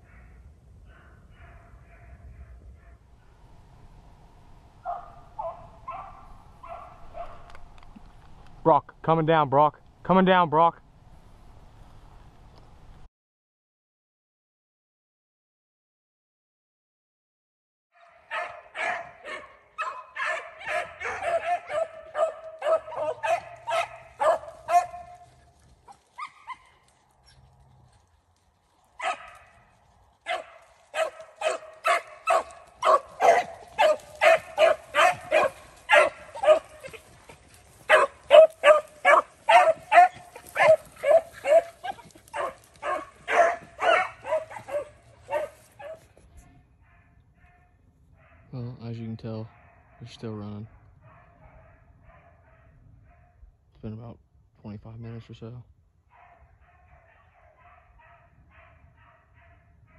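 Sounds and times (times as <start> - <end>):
hounds baying: 0.0 - 3.0, 4.8 - 7.8, 18.0 - 28.2, 29.0 - 46.2, 56.1 - 59.9.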